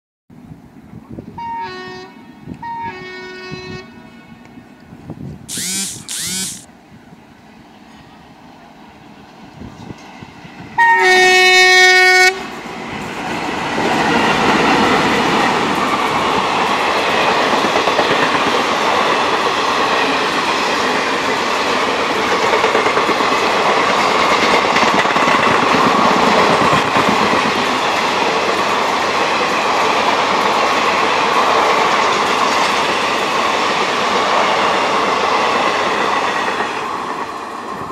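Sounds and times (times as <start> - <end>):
train horn: 1.4 - 4.5, 10.8 - 12.5.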